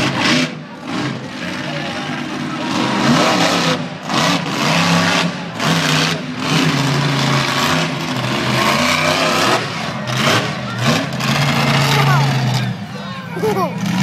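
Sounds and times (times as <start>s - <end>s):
truck engine revving hard: 0.0s - 14.0s.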